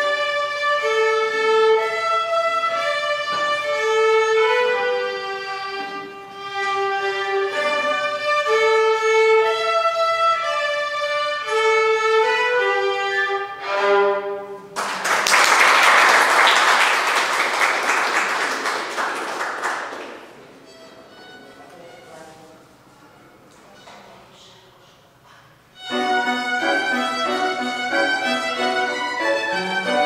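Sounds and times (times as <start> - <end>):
violins playing a melody: 0.0 - 14.8, 20.3 - 22.6, 25.7 - 30.0
applause: 14.8 - 20.4.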